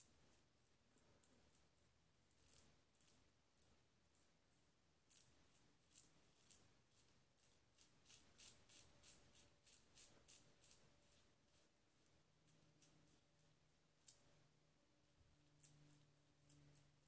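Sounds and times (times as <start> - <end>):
razor scratching through stubble: 2.3 - 4.2, 5.1 - 12.1, 15.4 - 17.0.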